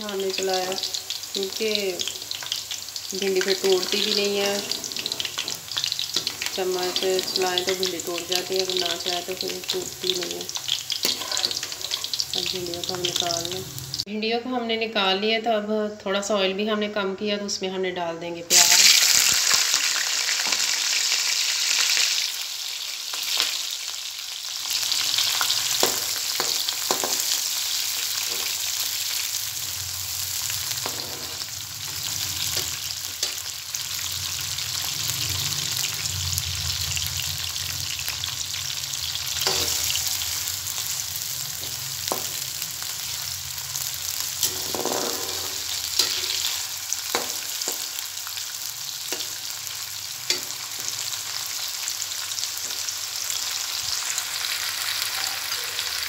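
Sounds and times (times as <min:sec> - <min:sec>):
onions sizzling in hot oil: 0:00.0 - 0:14.1, 0:18.5 - 0:56.0
metal spoon scraping pan: 0:03.4 - 0:08.7, 0:11.0 - 0:12.3, 0:28.2 - 0:28.6, 0:30.8 - 0:33.5, 0:39.4 - 0:40.2, 0:44.4 - 0:47.8.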